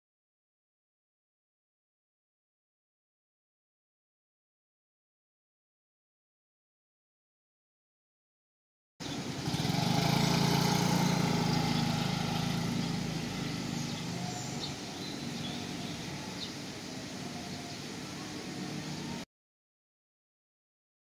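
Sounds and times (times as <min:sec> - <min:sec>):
small motorcycle engine running: 0:09.0 - 0:19.2.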